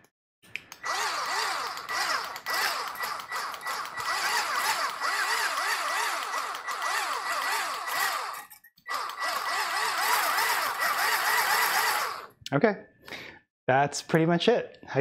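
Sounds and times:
stick blender whisking liquid: 0.8 - 12.3.

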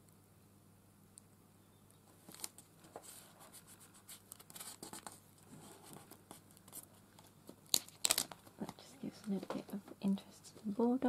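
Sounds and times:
paper crinkling and crackling: 2.1 - 11.0.

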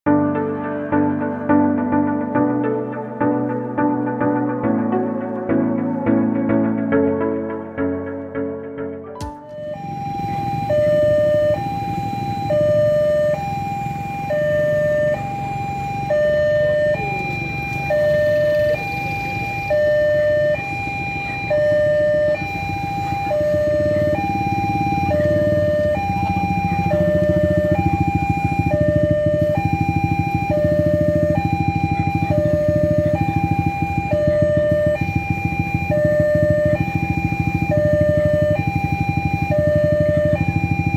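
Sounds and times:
motorbike engines rumbling: 0.1 - 40.9
two-tone crossing alarm: 9.2 - 40.9.

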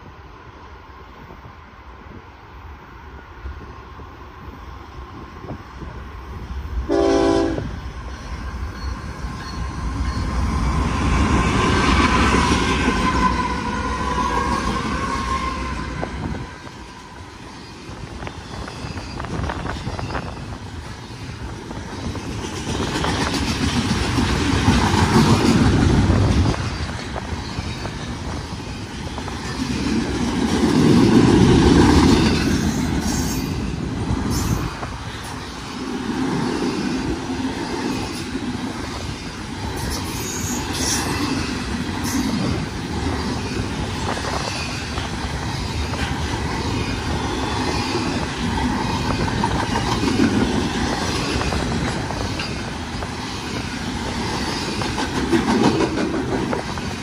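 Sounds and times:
freight train wheels rumbling on rail: 0.0 - 57.0
train horn: 6.9 - 7.7, 12.0 - 16.3.

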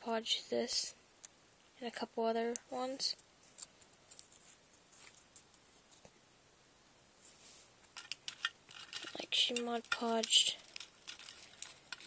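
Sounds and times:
light handling clicks and rustles: 2.5 - 6.1, 7.8 - 12.0.

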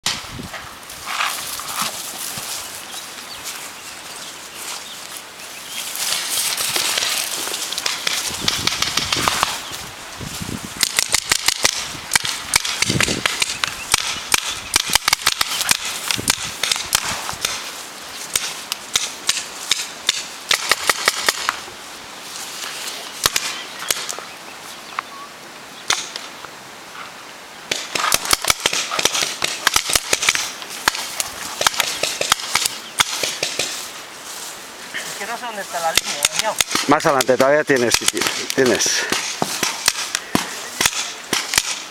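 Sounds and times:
paintball markers firing: 7.8 - 9.6, 10.8 - 17.7, 18.3 - 21.6, 27.7 - 33.8, 36.0 - 41.9.

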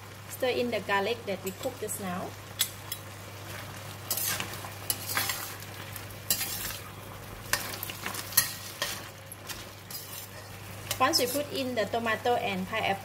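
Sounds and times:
food sizzling: 0.0 - 13.0
spatula scraping a wok: 3.4 - 11.6.

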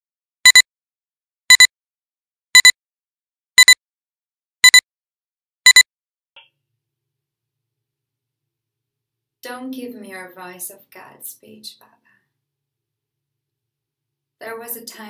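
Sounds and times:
high-pitched double beeps: 2.6 - 2.8, 4.6 - 4.8.

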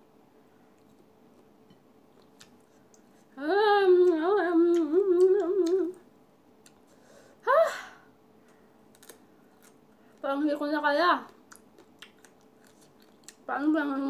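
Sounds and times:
woman humming: 3.4 - 6.0, 7.4 - 8.1.

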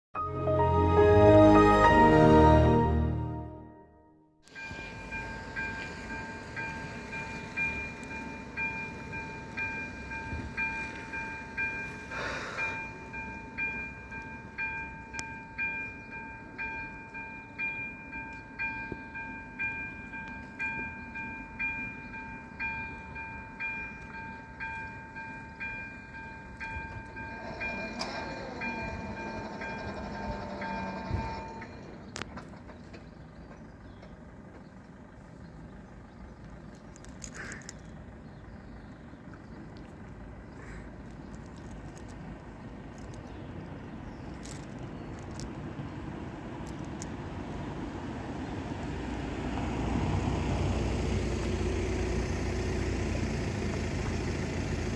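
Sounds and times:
level crossing warning bell ringing: 4.4 - 32.1.

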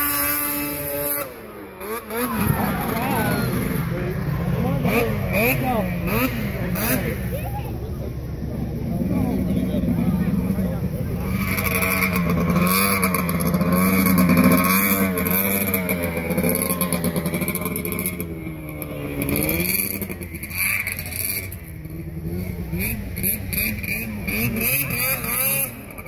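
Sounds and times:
snowmobile engine revving: 0.0 - 26.0.

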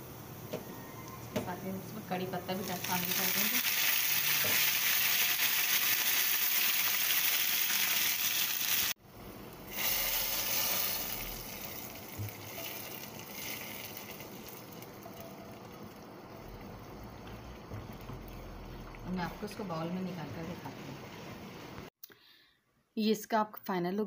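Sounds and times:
hot oil sizzling into lentils: 0.0 - 21.9
spices sizzling in hot oil: 1.6 - 9.0, 9.7 - 20.6.

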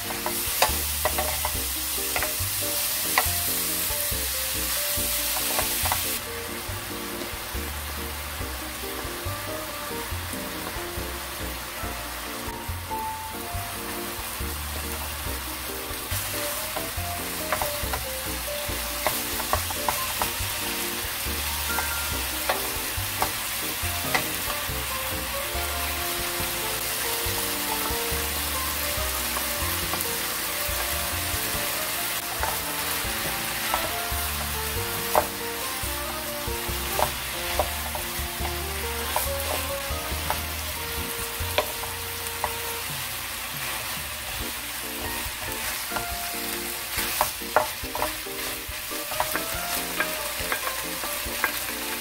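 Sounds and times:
spatula clacking on pan: 0.0 - 3.4, 5.3 - 6.2, 16.0 - 21.0, 21.6 - 24.9, 29.2 - 35.4, 36.2 - 40.6, 41.5 - 42.6, 45.2 - 52.0
meat sizzling in a frying pan: 0.0 - 52.0.

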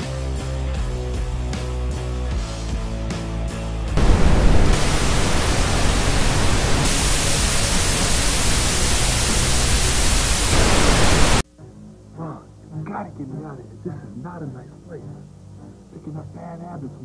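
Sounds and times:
tv static hiss: 4.0 - 11.4.

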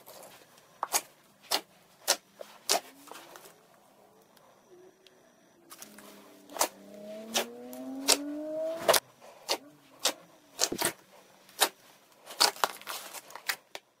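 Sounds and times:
slime squeaky whine: 2.1 - 11.8
wet slime pops and clicks: 7.3 - 8.2.

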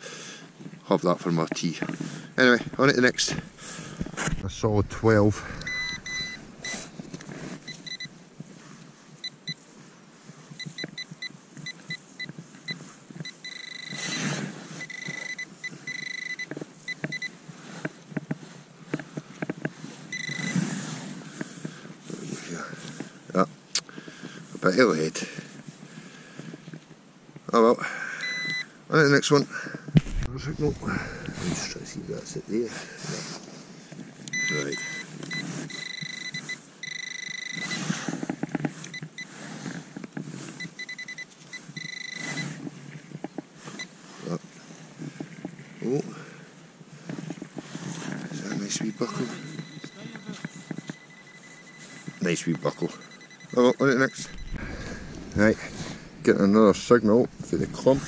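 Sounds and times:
pinpointer probe beeping: 4.9 - 8.2, 10.6 - 14.2, 14.8 - 17.3, 20.1 - 20.6, 28.2 - 28.6, 34.3 - 37.9, 40.6 - 42.6, 48.8 - 58.0
soil being broken apart: 30.0 - 31.9
soil and straw crackling: 30.0 - 33.9, 53.9 - 58.0.

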